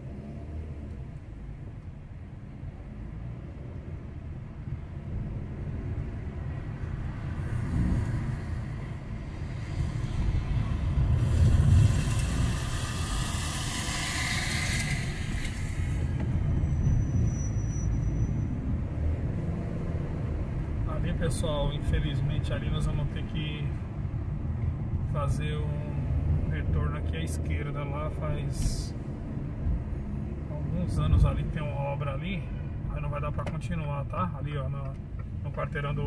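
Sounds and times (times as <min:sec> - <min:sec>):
car engine and road rumble: 0:00.0 - 0:36.0
road hiss: 0:07.6 - 0:16.4.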